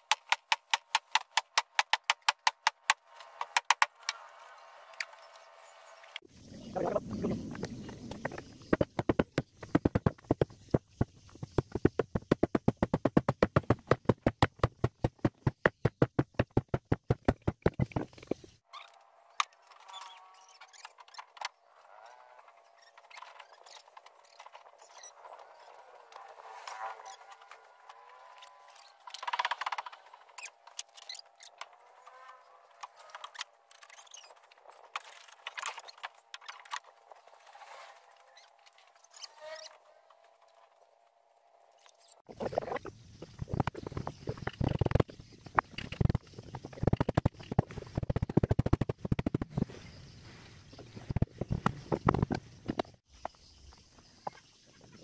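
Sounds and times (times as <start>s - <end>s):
rapid hammering on wood: 0.0s - 3.9s, 8.7s - 18.2s
sped-up hand tool clicks and taps: 0.0s - 3.9s
squeaky scrapes: 18.4s - 40.7s.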